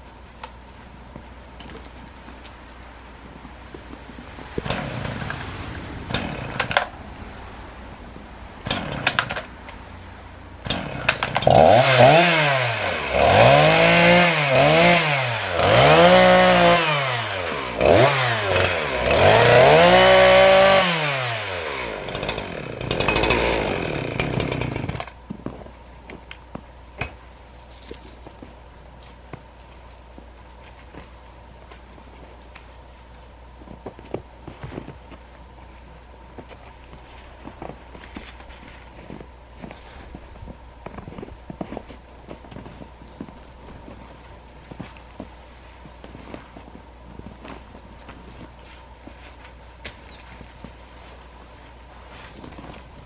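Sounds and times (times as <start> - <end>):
chainsaw cutting branches: 4.5 - 7.0, 8.6 - 9.5, 10.6 - 25.3.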